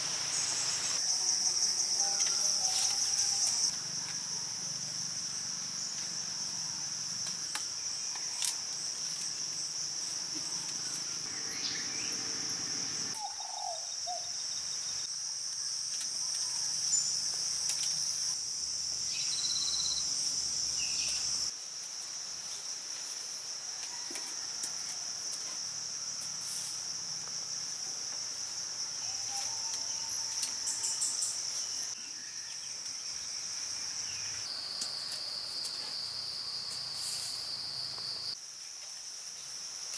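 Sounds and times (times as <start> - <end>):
insects chirping chorus: 0.0 - 39.9
short insect chirps: 19.0 - 21.5.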